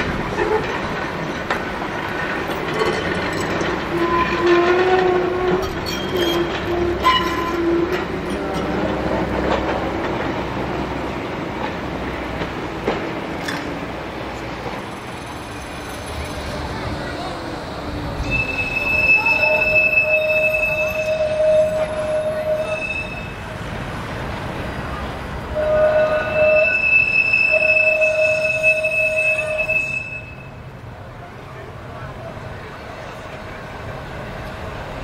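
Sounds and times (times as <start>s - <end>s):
tram rumbling on rails: 0.0s - 35.0s.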